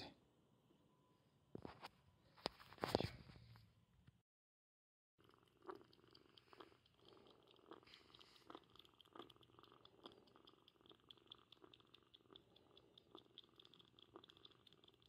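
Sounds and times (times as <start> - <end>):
kitten purring: 5.2 - 15.0.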